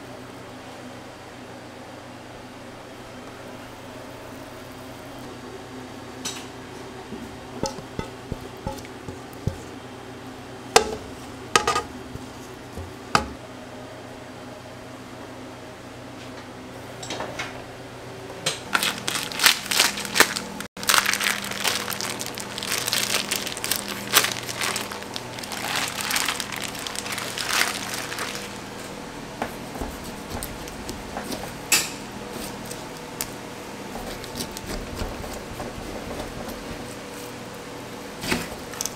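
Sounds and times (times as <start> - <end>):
plastic wrap crinkling: 18.7 - 28.8.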